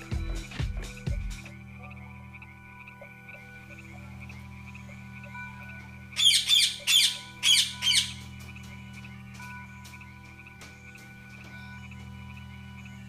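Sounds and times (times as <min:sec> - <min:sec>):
frogs chorus: 0:00.0 - 0:13.0
low drone: 0:00.0 - 0:13.0
parrot squawking: 0:06.2 - 0:08.3.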